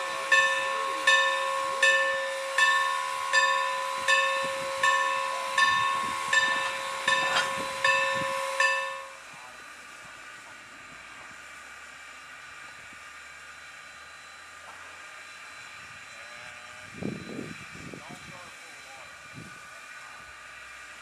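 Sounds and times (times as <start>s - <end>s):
steam locomotive bell ringing: 0.0s - 10.2s, 18.2s - 20.9s.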